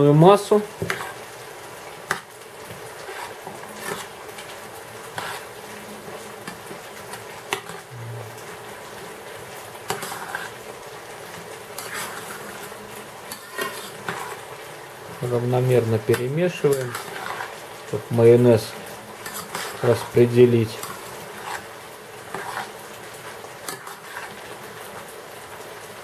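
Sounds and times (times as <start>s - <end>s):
steady hum: 7.8s - 13.3s.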